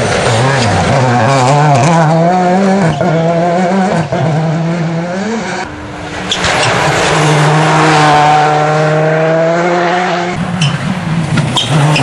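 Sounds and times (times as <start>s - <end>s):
rally car engine revving: 0.0s - 12.0s.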